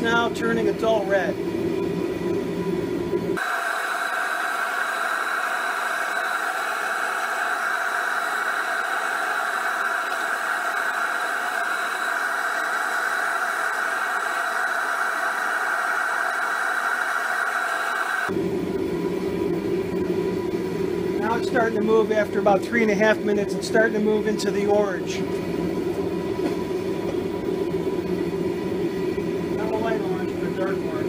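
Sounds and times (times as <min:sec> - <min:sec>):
high even hiss of forge burner: 0:03.4 - 0:18.4, 0:19.5 - 0:31.0.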